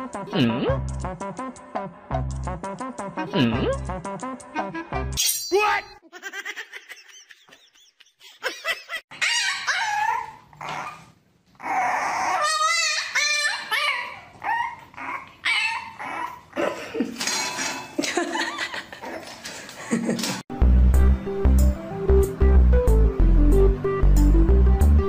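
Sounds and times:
puppy yapping and whining: 9.1 - 16.6.

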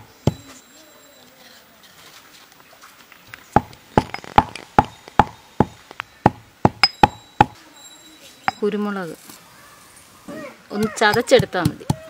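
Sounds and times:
pestle pounding in stone mortar: 3.5 - 7.6, 10.8 - 12.0.

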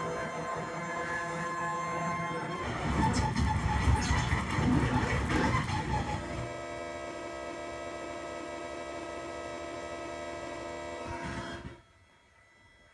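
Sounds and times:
steady electronic synth drone: 0.0 - 5.3.

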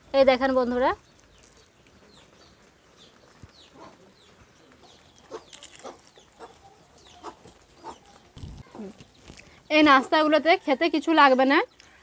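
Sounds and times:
small birds chirping: 0.0 - 12.0
chickens clucking: 2.1 - 10.2.

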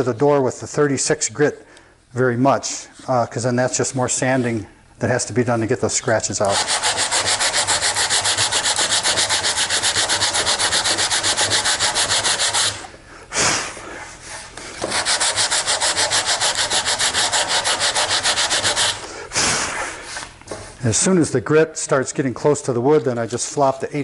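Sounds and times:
sandpaper sanding: 6.5 - 12.9, 14.8 - 19.0.

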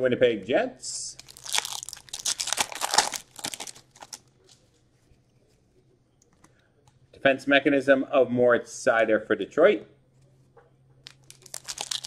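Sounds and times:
foil wrapper tearing and crinkling: 1.2 - 4.2, 11.1 - 12.0.

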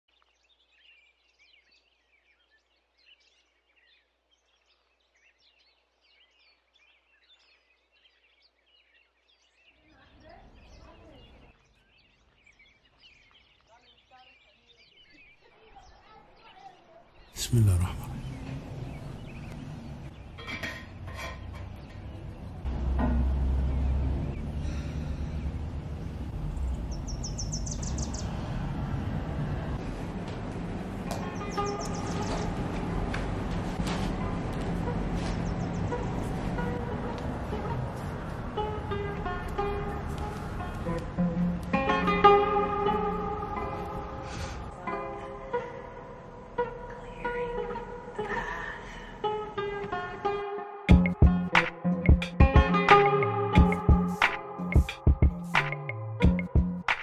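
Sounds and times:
small birds chirping: 0.1 - 22.7, 23.6 - 28.7, 31.1 - 33.1, 34.7 - 37.2
low outdoor rumble: 17.8 - 41.2.

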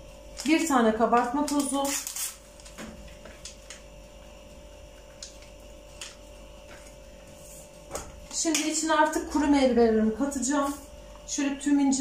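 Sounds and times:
faint steady hum: 0.0 - 12.0
paper sachet rustling: 0.4 - 3.9.

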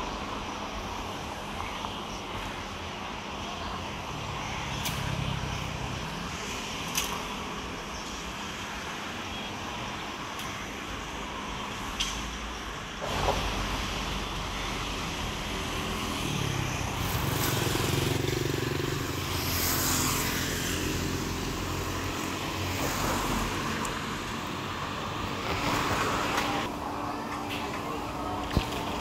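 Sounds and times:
traffic rush: 0.0 - 29.0
passing cars hum: 11.2 - 29.0.

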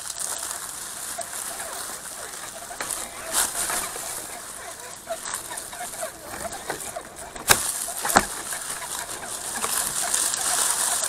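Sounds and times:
toy truck rolling over rocks: 0.0 - 11.0.

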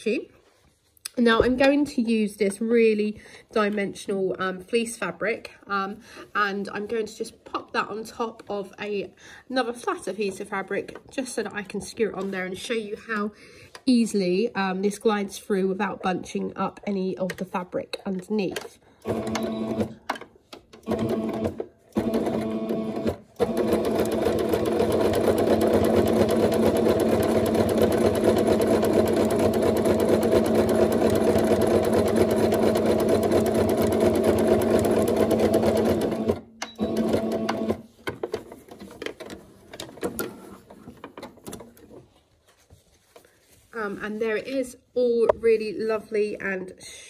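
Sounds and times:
sewing machine stitching: 19.0 - 20.0, 20.8 - 42.0.

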